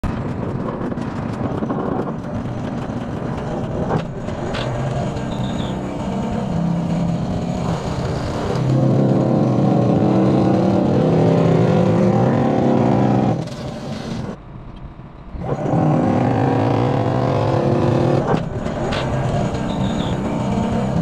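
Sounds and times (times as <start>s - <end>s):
excavator engine: 0.0s - 21.0s
vibratory pile hammer droning: 0.0s - 21.0s.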